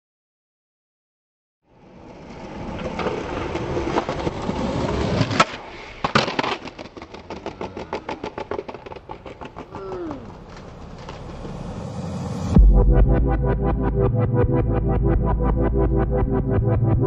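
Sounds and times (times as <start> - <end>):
skateboard wheels rolling on concrete: 1.7 - 12.6
skateboard snapping: 2.8 - 11.4
skateboard landing clack: 2.8 - 11.5
fast run of clicks: 5.4 - 11.6
falling tone: 6.6 - 14.3.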